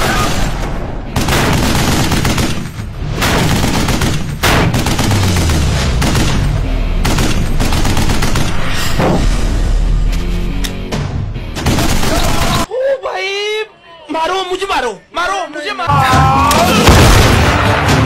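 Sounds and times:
rapid gunfire: 0:01.2 - 0:08.7, 0:11.6 - 0:12.6.

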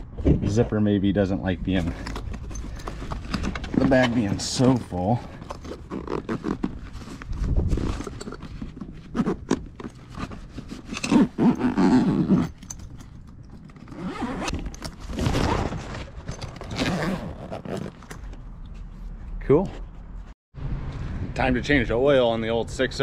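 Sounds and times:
zipper being pulled: 0:04.7 - 0:18.2.

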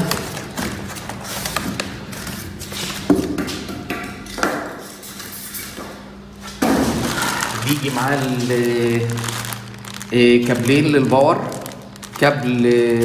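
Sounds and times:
faint steady hum: 0:02.8 - 0:13.0
cardboard and foam rustling: 0:06.6 - 0:13.0.

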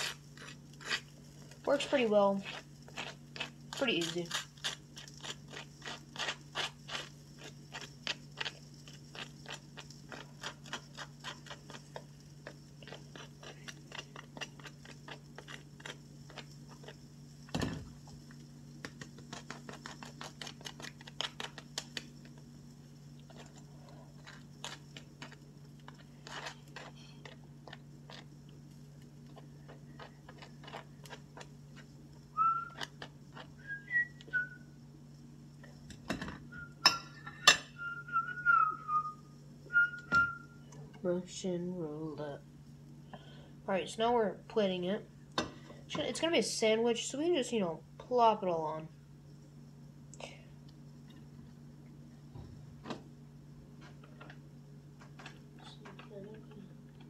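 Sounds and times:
fork scraping butter on bagel: 0:00.0 - 0:17.1, 0:18.8 - 0:22.4, 0:23.2 - 0:32.0
steady low hum: 0:00.0 - 0:57.0
thump: 0:17.5 - 0:17.9.

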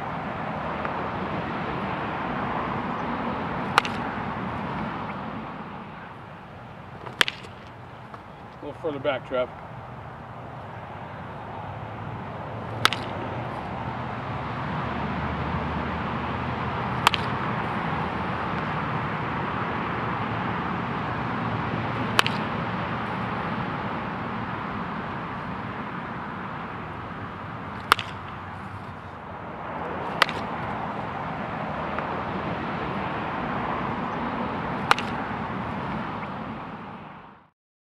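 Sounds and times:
steady background rush: 0:00.0 - 0:37.4
bat cracking against ball: 0:03.0 - 0:11.4, 0:12.6 - 0:13.7, 0:16.9 - 0:18.8, 0:21.9 - 0:23.8, 0:25.4 - 0:33.0, 0:33.8 - 0:36.5.

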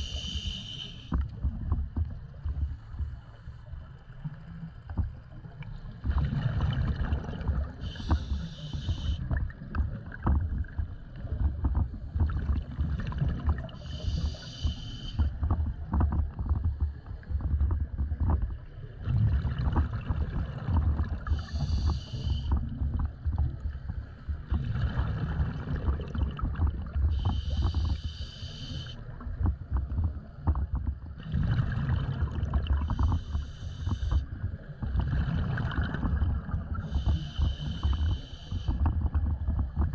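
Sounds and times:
regulator hissing inhale: 0:00.0 - 0:01.2, 0:07.8 - 0:09.2, 0:13.8 - 0:15.3, 0:21.3 - 0:22.6, 0:27.1 - 0:29.0, 0:32.9 - 0:34.2, 0:36.8 - 0:38.8
exhaled bubbles rumbling: 0:00.0 - 0:39.9.

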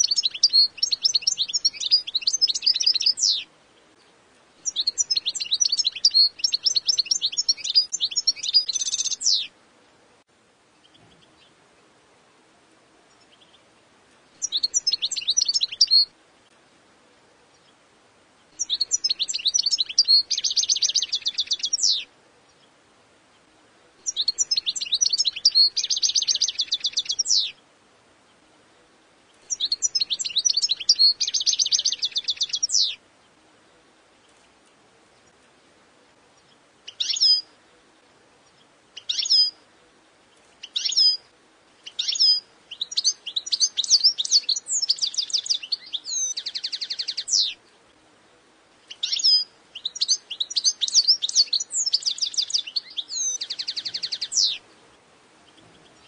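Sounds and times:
goldfinch twittering song: 0:00.0 - 0:09.5, 0:14.3 - 0:16.5, 0:18.4 - 0:23.4, 0:24.0 - 0:27.6, 0:29.3 - 0:33.0, 0:36.4 - 0:37.6, 0:38.4 - 0:39.6, 0:40.3 - 0:47.8, 0:48.8 - 0:56.0.

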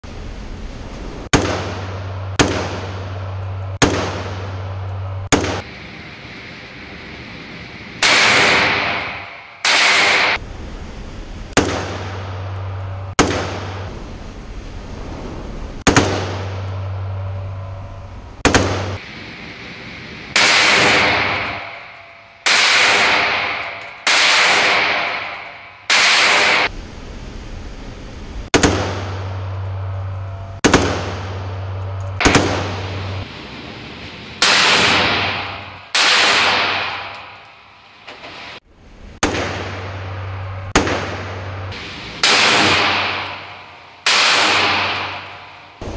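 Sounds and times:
full-auto gunfire bursts: 0:08.0 - 0:10.4, 0:20.4 - 0:21.8, 0:22.4 - 0:26.7, 0:32.2 - 0:32.9, 0:34.4 - 0:37.3, 0:40.8 - 0:45.4
rifle gunshots: 0:08.0 - 0:10.4, 0:20.4 - 0:26.7, 0:32.2 - 0:33.0, 0:34.4 - 0:37.4, 0:40.7 - 0:45.9.

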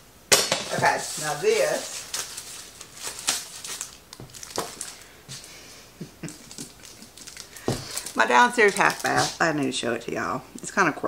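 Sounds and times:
packaging being unwrapped: 0:00.7 - 0:05.5, 0:06.3 - 0:09.4.

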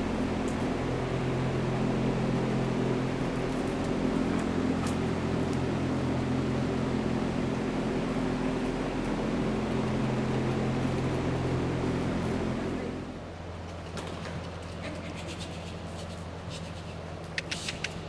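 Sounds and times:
mechanical hum with low tones: 0:00.0 - 0:18.0.

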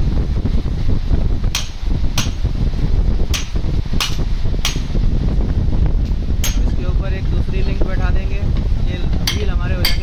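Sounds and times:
low rumble: 0:00.0 - 0:10.0
hammer striking steel: 0:01.5 - 0:02.5, 0:03.3 - 0:05.0, 0:06.4 - 0:06.7, 0:09.2 - 0:10.0.

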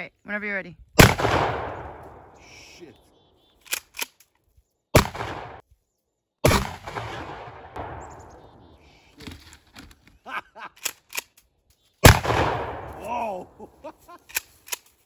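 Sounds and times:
shotgun shots: 0:01.0 - 0:02.4, 0:05.0 - 0:05.6, 0:06.4 - 0:08.7, 0:12.0 - 0:13.2
sharp clicks: 0:03.5 - 0:04.4, 0:09.2 - 0:11.5, 0:14.2 - 0:15.0.

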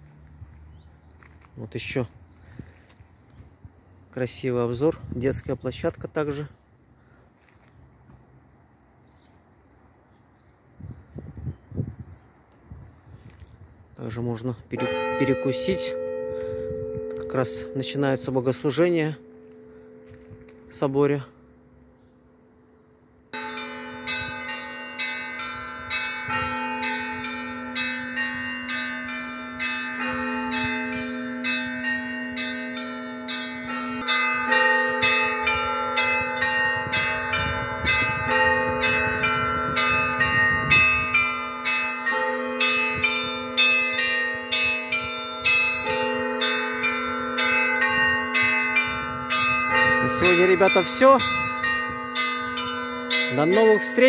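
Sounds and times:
small church bells ringing: 0:14.3 - 0:54.0
deep bell humming: 0:14.8 - 0:54.0.

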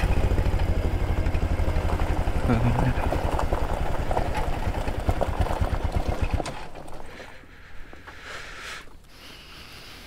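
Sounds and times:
motorcycle engine running: 0:00.0 - 0:07.5.

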